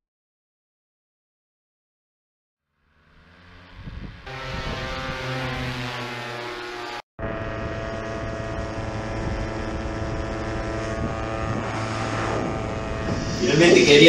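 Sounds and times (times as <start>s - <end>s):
paramotor engine and propeller: 2.8s - 14.0s.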